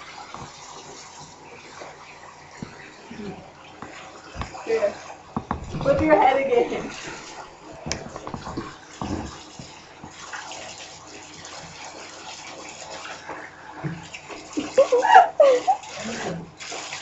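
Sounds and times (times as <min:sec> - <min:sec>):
tap water running onto hair: 0:00.0 - 0:17.0
person speaking: 0:04.5 - 0:07.2
knocks: 0:05.3 - 0:06.9.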